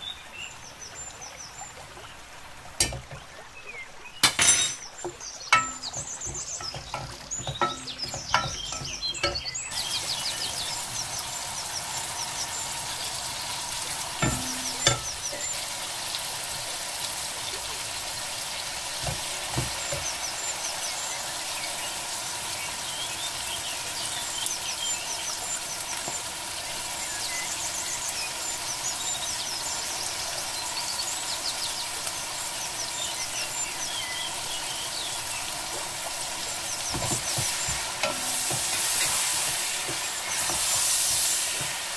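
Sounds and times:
onions sizzling in hot oil: 2.4 - 3.4, 4.3 - 41.9.

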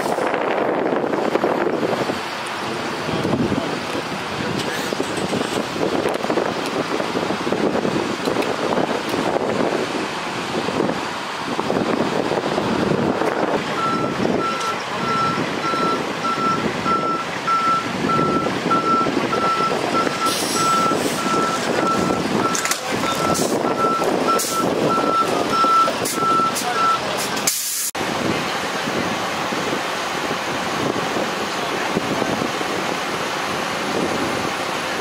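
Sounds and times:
idling engines: 0.0 - 35.0
traffic: 0.0 - 35.0
reversing alarm beeping: 13.8 - 27.0
air hiss: 27.5 - 28.0.

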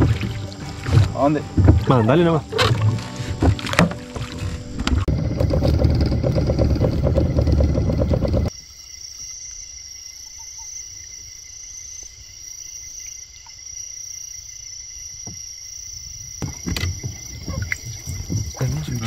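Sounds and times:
boat motor: 0.0 - 8.5
insects chirring: 0.0 - 19.0.

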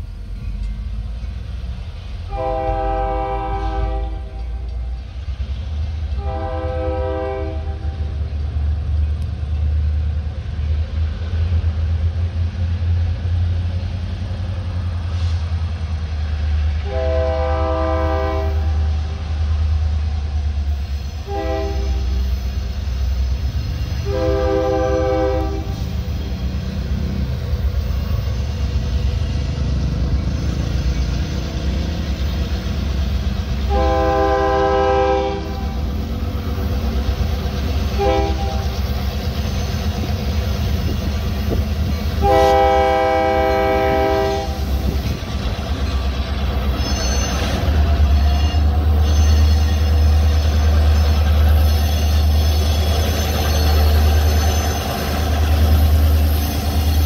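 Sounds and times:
low rumble of train: 0.0 - 57.0
locomotive air horn blasts: 2.3 - 4.7, 6.1 - 8.1, 16.8 - 18.8, 21.2 - 22.2, 24.0 - 25.8, 33.7 - 35.8, 37.9 - 38.7, 42.2 - 44.7.

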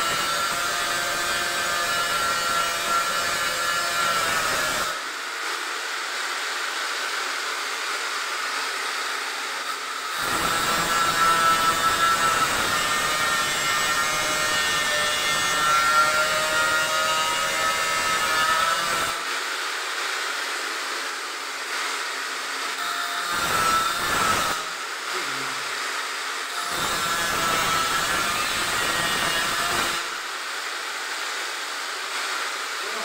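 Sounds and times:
angle grinder cutting steel: 0.0 - 5.0, 9.6 - 19.6, 21.5 - 30.6.

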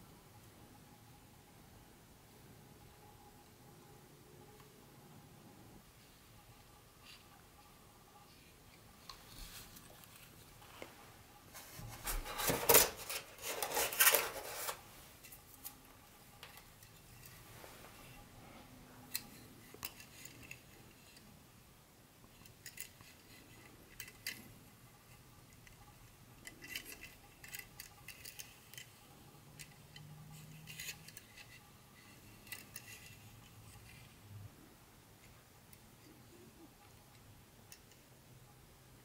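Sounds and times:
small hard parts clicking: 22.3 - 34.1.

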